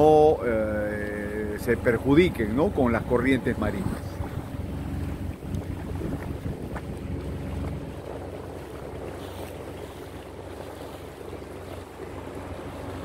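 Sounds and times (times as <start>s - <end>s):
motorboat engine humming: 0.0s - 13.0s
wind noise on microphone: 3.8s - 11.5s.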